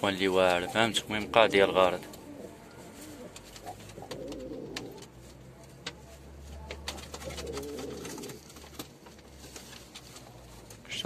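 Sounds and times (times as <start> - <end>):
pigeon cooing: 0.5 - 5.1, 7.0 - 8.5.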